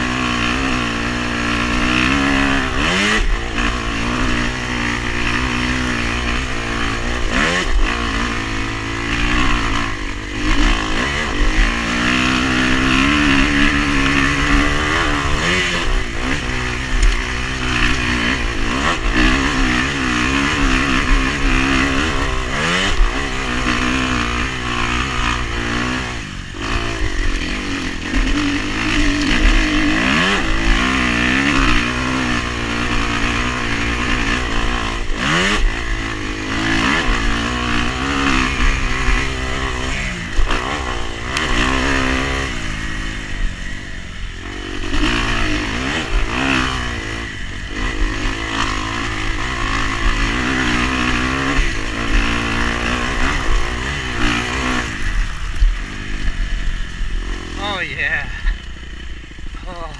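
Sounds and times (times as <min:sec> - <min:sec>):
off-road vehicle engine revving: 0:00.0 - 0:59.9.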